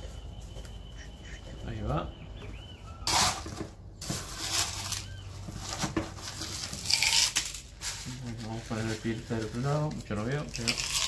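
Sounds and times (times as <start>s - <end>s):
bird chirping: 0.0s - 5.6s
plastic scoop scraping gravel: 3.0s - 11.0s.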